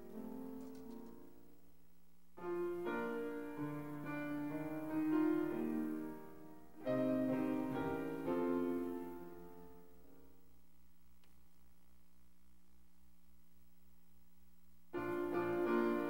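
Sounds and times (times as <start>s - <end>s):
slow keyboard music: 0.0s - 1.6s, 2.4s - 10.5s, 15.0s - 16.0s.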